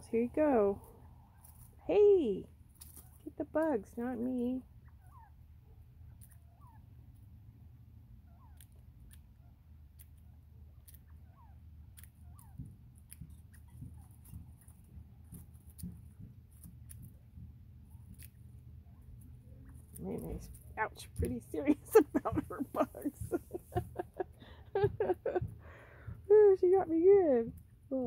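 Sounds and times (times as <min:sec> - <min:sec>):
faint low hum: 0:00.0 - 0:28.0
quail peeping: 0:02.7 - 0:27.9
beak pecking clicks: 0:06.0 - 0:06.8, 0:08.3 - 0:17.3.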